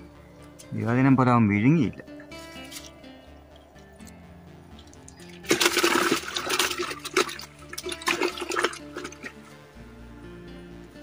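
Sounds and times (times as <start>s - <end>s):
faint background music: 0.0s - 11.0s
water splashing: 4.7s - 9.4s.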